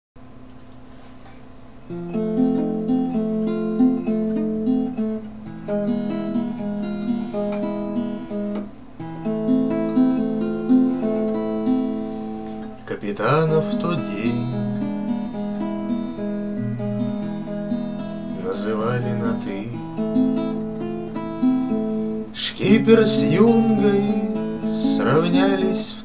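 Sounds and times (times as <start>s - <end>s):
acoustic guitar playing: 1.8s - 26.0s.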